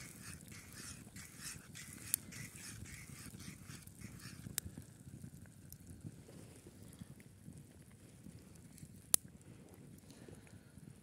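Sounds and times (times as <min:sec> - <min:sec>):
spatula scraping sizzling pan: 0:00.0 - 0:04.5.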